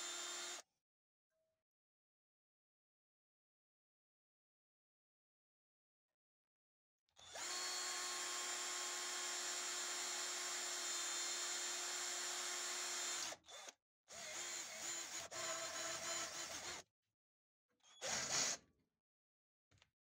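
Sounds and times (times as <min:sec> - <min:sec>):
power drill whining: 0:00.0 - 0:00.6, 0:07.2 - 0:16.8.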